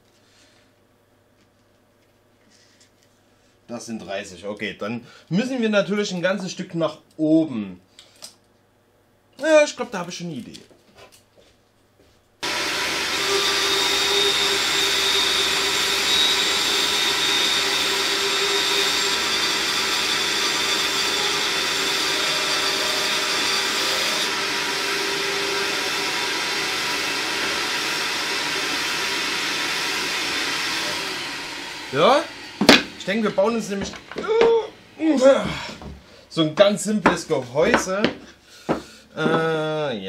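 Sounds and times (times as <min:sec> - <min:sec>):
band saw cutting wood: 0:12.4 - 0:35.4.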